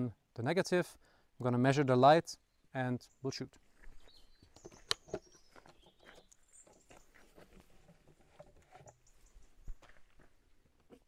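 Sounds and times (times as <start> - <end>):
faint bird chirps: 2.3 - 7.4
handling clicks on wooden box: 4.5 - 7.0.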